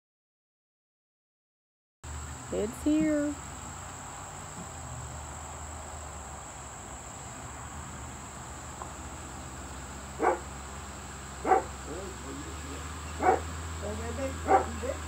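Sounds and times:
insects droning: 0:02.1 - 0:15.0
pickup truck engine hum: 0:02.1 - 0:15.0
dog barking: 0:10.2 - 0:10.5, 0:11.4 - 0:11.8, 0:13.2 - 0:13.5, 0:14.4 - 0:14.9.

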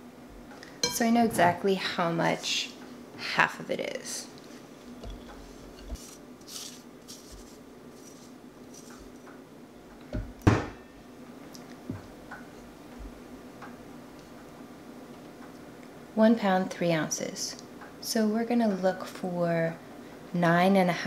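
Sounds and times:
dough scraping in a bowl: 0:05.1 - 0:09.2
bowl knocks: 0:10.2 - 0:10.9.

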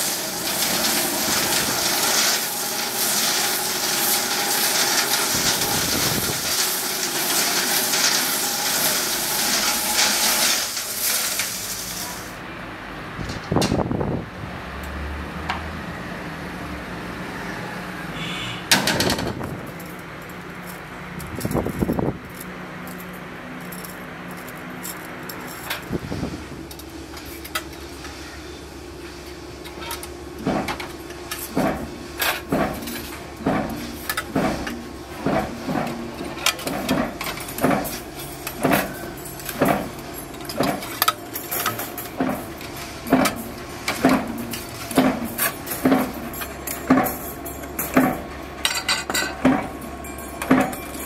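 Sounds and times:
steel rods clanking and ringing: 0:36.6 - 0:51.0.

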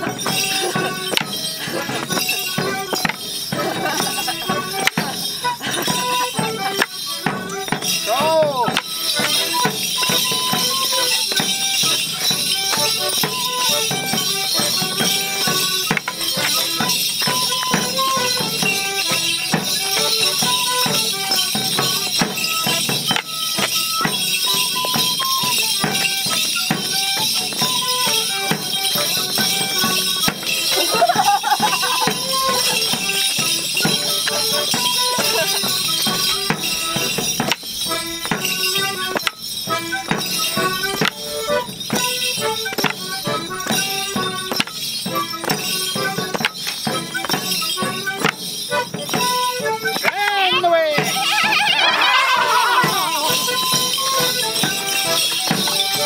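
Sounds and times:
instrumental folk dance tune: 0:00.0 - 0:56.0
steady jingling: 0:00.0 - 0:56.0
wooden sticks clacking: 0:00.6 - 0:03.2, 0:04.8 - 0:05.0, 0:06.8 - 0:09.5, 0:15.9 - 0:16.6, 0:33.8 - 0:39.4, 0:40.2 - 0:43.1, 0:44.5 - 0:44.8, 0:45.4 - 0:47.5, 0:49.1 - 0:50.5.

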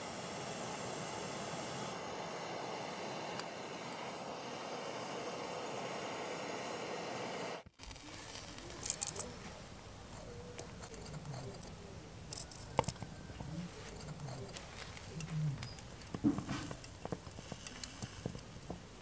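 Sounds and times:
gas torch hissing: 0:00.0 - 0:19.0
light rustles and clicks: 0:08.3 - 0:19.0
metal tongs clinking: 0:08.6 - 0:18.7.

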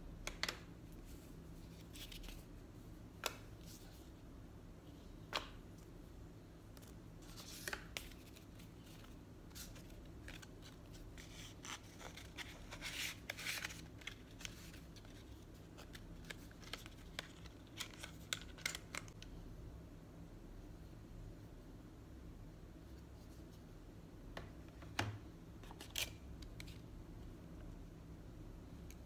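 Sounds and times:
paper and cardboard rustling: 0:06.8 - 0:19.0.

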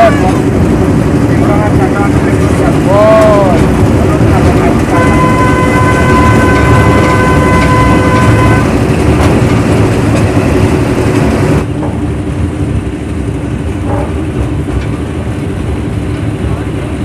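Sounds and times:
horn tone: 0:00.0 - 0:00.5, 0:04.8 - 0:08.8.

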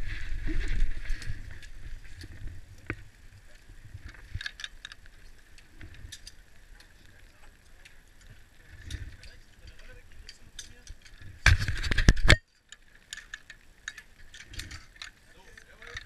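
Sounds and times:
wind rumble on camera: 0:00.0 - 0:12.4.

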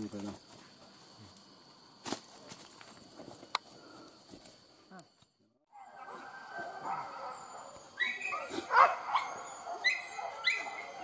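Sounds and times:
steady background hiss: 0:00.0 - 0:11.0
dogs yelping and barking: 0:05.7 - 0:11.0.

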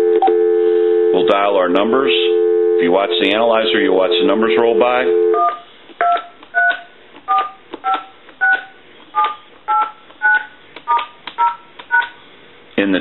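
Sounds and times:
dial tone: 0:00.0 - 0:01.3, 0:02.3 - 0:03.1
touch-tone dialing beeps: 0:05.3 - 0:12.2
key press clicks: 0:05.4 - 0:12.2.

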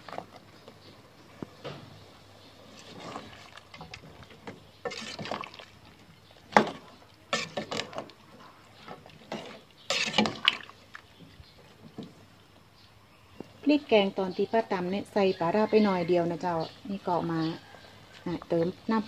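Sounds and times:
liquid sloshing in pot: 0:02.6 - 0:12.4.

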